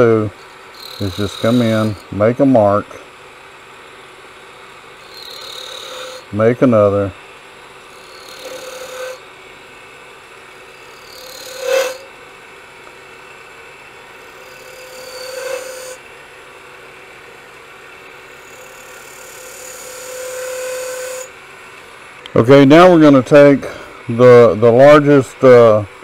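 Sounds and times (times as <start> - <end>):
caliper scratching spinning wood: 0.0 - 3.0, 3.7 - 21.4
lathe running: 0.0 - 26.0.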